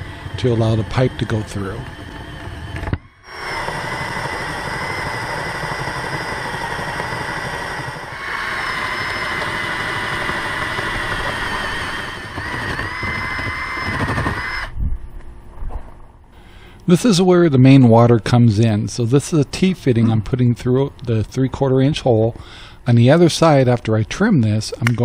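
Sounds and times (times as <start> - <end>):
cordless drill whining: 0.0 - 14.8.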